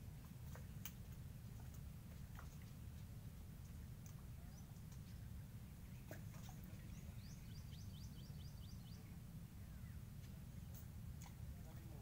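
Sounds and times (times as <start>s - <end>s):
steady low rumble: 0.0s - 12.0s.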